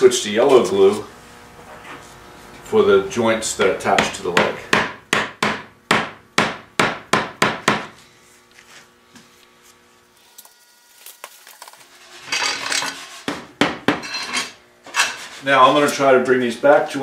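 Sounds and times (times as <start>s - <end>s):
metal clamps clattering and scraping: 11.6s - 13.2s, 14.0s - 15.3s.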